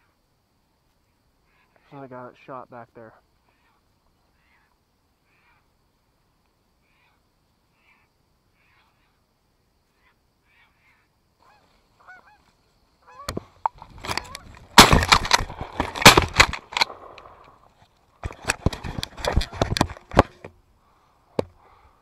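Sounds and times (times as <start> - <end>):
geese honking: 9.9 - 16.1
sharp knocks and rustles: 13.3 - 20.6
shotgun blasts: 14.7 - 17.3.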